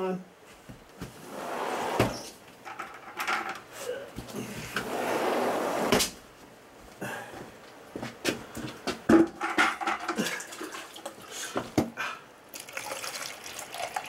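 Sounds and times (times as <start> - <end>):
containers knocking and clunking: 8.9 - 10.7.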